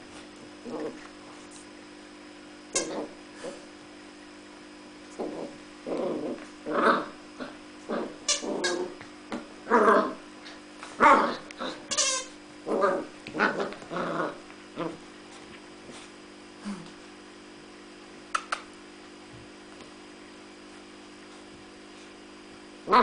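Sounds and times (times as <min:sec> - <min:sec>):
puppy growling: 0:00.6 - 0:01.5, 0:02.8 - 0:03.7, 0:05.1 - 0:11.9, 0:12.6 - 0:15.1.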